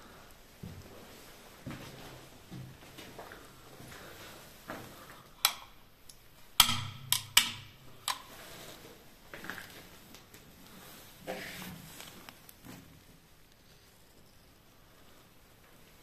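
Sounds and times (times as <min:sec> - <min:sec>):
sharp clicks and knocks: 0:05.4 - 0:08.3.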